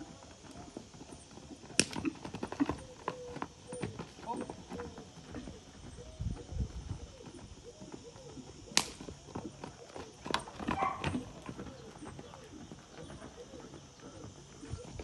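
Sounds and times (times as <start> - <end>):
horse hooves on dirt: 0.0 - 15.0
sharp crack: 8.8 - 9.1.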